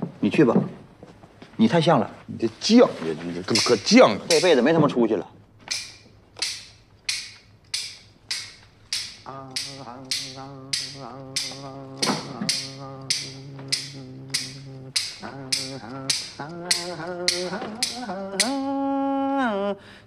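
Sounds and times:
hand clappers clicking: 3.5 - 4.6, 5.7 - 18.7
man singing drawn-out notes: 9.0 - 19.8.

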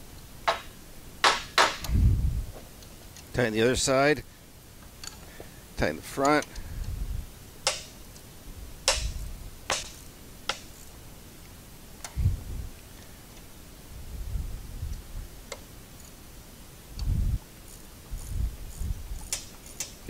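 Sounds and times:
wrench metallic clicks: 17.7 - 20.0.

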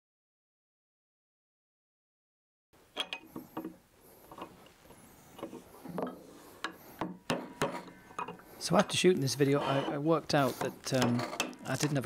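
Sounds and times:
tools knocking on wooden bench: 7.0 - 8.4.

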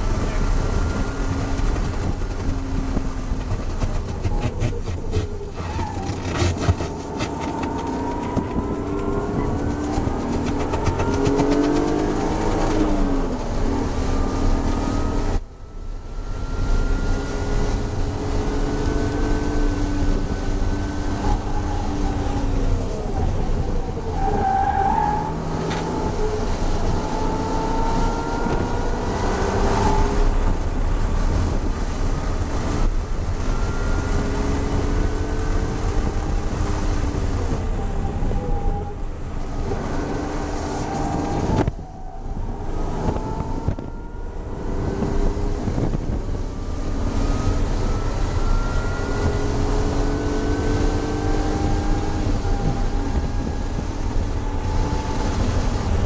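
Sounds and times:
car engine accelerating through gears: 0.0 - 56.0.

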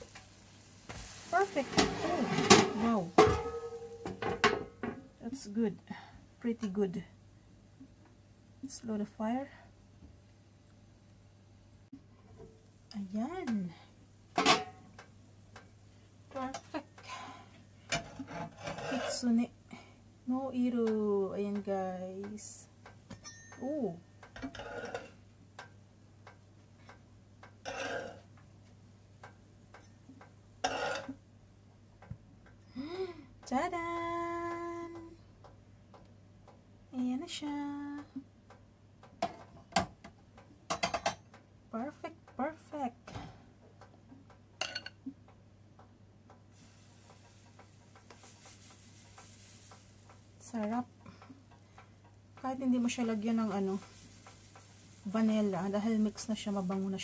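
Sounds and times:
batter sizzling on griddle: 0.0 - 5.5, 12.6 - 31.2, 46.4 - 57.0
metal spatula scraping griddle: 1.0 - 4.6, 17.9 - 19.4, 27.6 - 28.2
faint regular ticking: 12.6 - 18.1, 19.2 - 30.6, 31.2 - 57.0
metal spoon clinking bowl: 23.1 - 23.6.

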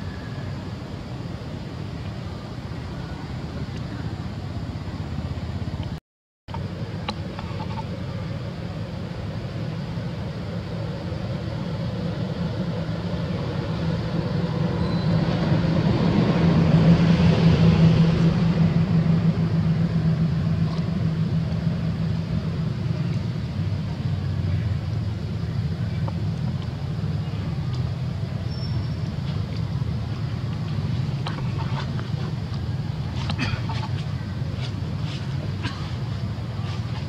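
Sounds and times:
vehicle engine hum: 0.0 - 37.0.

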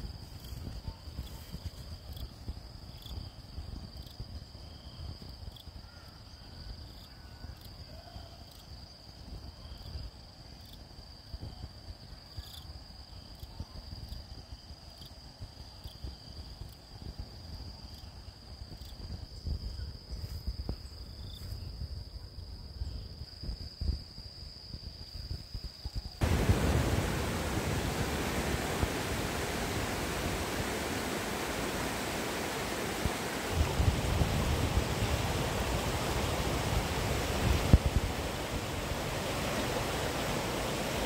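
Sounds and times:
faint insect call: 0.0 - 41.0
insects trilling: 25.8 - 41.0
low uneven rumble: 26.2 - 41.0.

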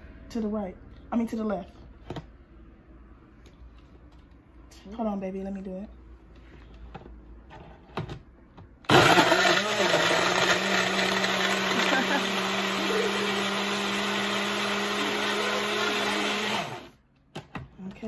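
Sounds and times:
blender whirring: 8.9 - 17.0.

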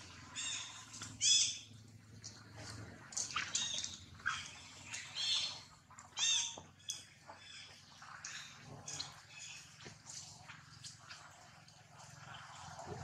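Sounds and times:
baby monkey squeaking calls: 0.4 - 1.6, 6.2 - 7.0.

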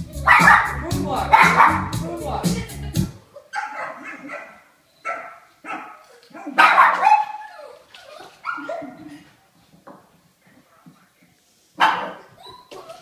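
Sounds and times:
dog barking: 0.2 - 1.9, 3.4 - 7.5, 11.8 - 12.6.

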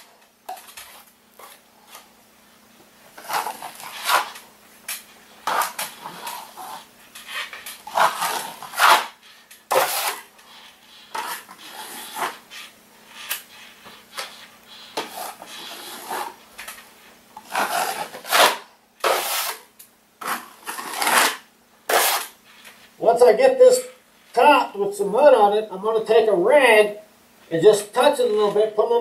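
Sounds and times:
taping knife scraping compound: 3.2 - 4.4, 5.4 - 16.4, 17.4 - 22.8.

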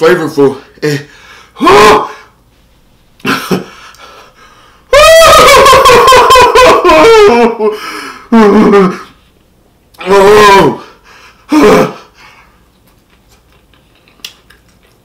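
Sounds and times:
man wailing in pain: 1.6 - 2.3, 4.9 - 9.1, 10.0 - 10.9.

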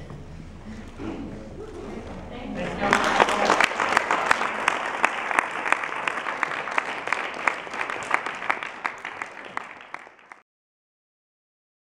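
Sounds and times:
people applauding: 2.6 - 10.4.

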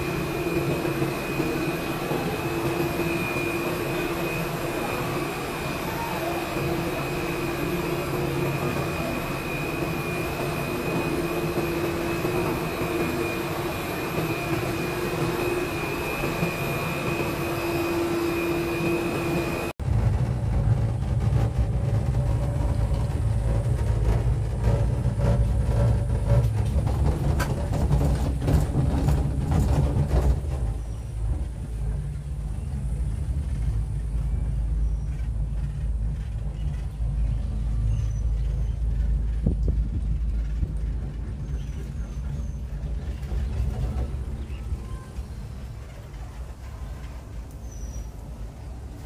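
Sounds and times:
machinery hum with high whine: 0.0 - 49.0
wind rumble on microphone: 19.8 - 46.3.

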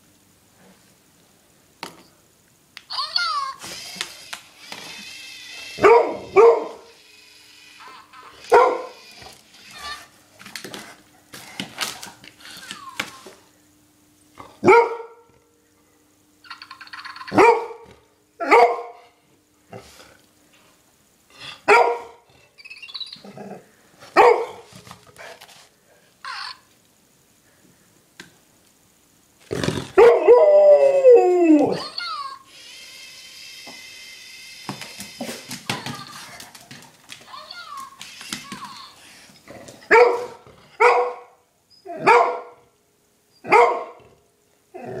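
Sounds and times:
dog barking: 5.8 - 6.9, 8.5 - 9.0, 14.6 - 15.2, 17.4 - 17.8, 18.4 - 19.0, 21.7 - 22.2, 24.2 - 24.6, 39.9 - 41.4, 42.0 - 42.6, 43.5 - 44.0.

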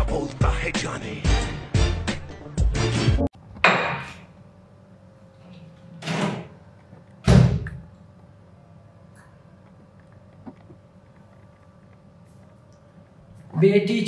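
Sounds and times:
background music: 0.0 - 3.3.

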